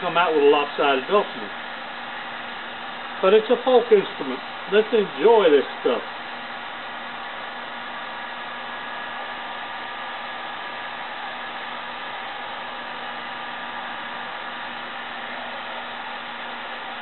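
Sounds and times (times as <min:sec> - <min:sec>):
fan motor hum: 0:00.0 - 0:17.0.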